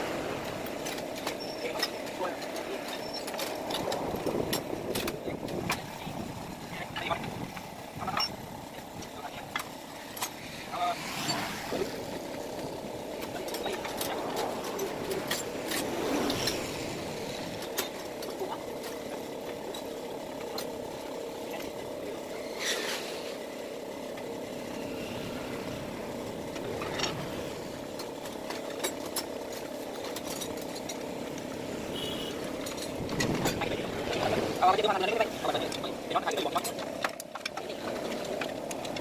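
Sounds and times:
steady background drone: 0:00.0 - 0:39.0
metal parts clicking and knocking: 0:00.4 - 0:06.1, 0:12.3 - 0:20.8, 0:26.4 - 0:31.8, 0:35.2 - 0:39.0.

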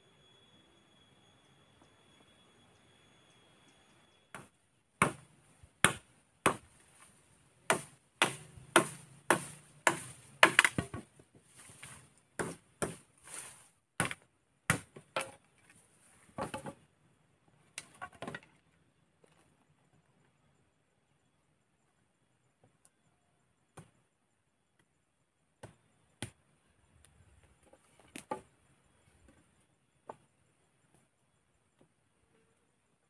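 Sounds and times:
blade chopping bamboo: 0:04.4 - 0:05.2, 0:05.8 - 0:06.7, 0:07.7 - 0:11.1, 0:11.7 - 0:13.1, 0:14.0 - 0:15.4.

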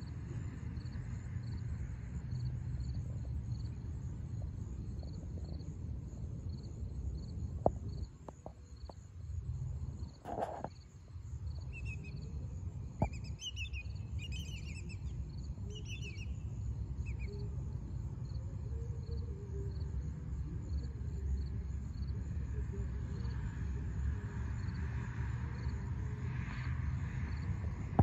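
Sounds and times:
wind rumble: 0:00.0 - 0:15.7
faint high chirp: 0:11.6 - 0:12.4, 0:13.0 - 0:17.6
birds chirping: 0:13.0 - 0:16.5.

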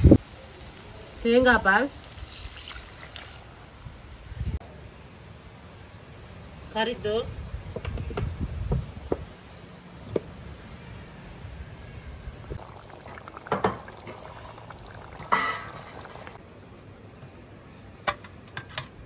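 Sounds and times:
curry simmering and sloshing: 0:12.4 - 0:16.4.

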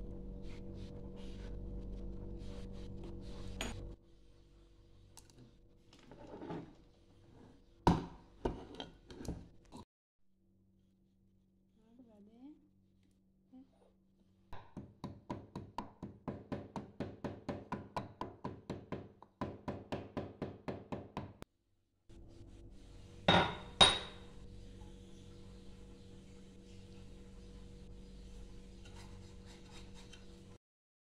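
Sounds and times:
steady low hum: 0:00.0 - 0:05.6.

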